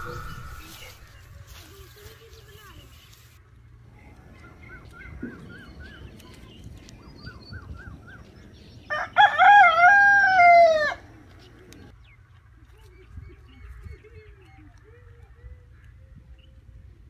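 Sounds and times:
small birds chirping: 0.0s - 9.5s, 10.9s - 16.8s
rooster crowing: 8.9s - 11.0s.

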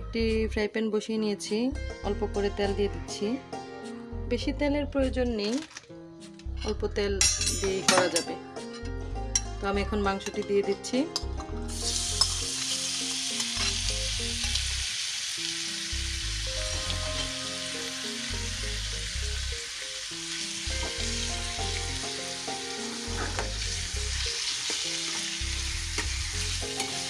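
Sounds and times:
chicken sizzling in hot oil: 11.7s - 27.0s.

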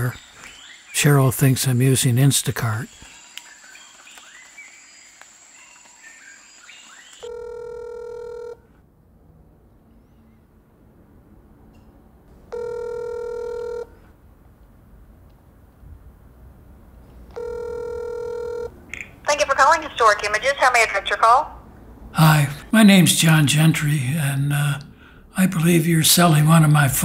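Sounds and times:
telephone ringback tone: 7.2s - 8.7s, 12.5s - 14.0s, 17.3s - 18.7s.

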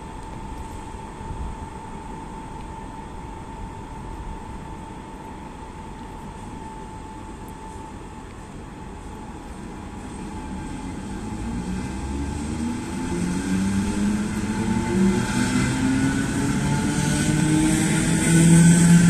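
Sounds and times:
electric train motors whining: 8.9s - 19.0s.

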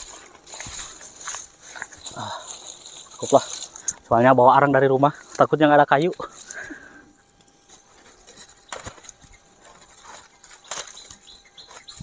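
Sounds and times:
stems snapping: 0.0s - 4.1s, 8.3s - 12.0s
leaves rustling and crackling: 0.0s - 12.0s.

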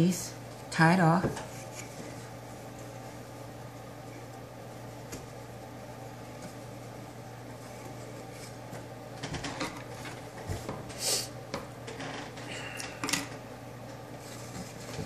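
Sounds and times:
yarn rustling and rubbing: 1.4s - 9.1s.

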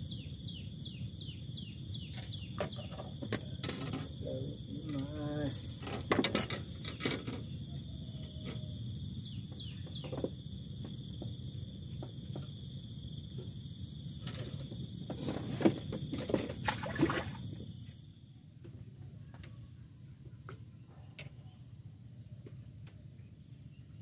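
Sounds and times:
high insect buzz: 0.0s - 18.2s.

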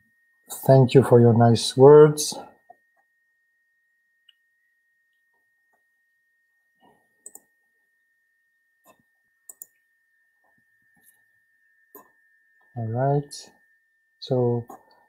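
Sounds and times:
faint high whine: 0.0s - 15.0s
computer mouse clicks: 7.2s - 7.5s, 8.8s - 9.8s.

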